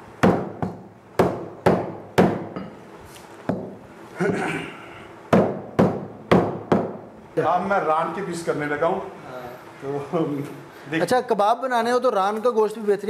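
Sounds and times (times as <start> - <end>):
cleaver chopping meat on wood: 0.2 - 2.5.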